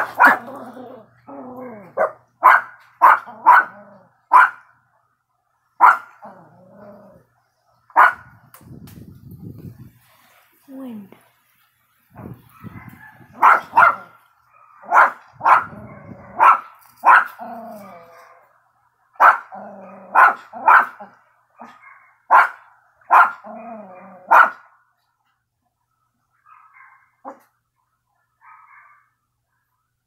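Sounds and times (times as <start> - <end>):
small dog barking: 0.0 - 0.7, 1.9 - 4.7, 5.8 - 6.4, 7.9 - 8.3, 12.5 - 17.4, 19.2 - 24.7, 26.4 - 27.5, 28.4 - 29.2.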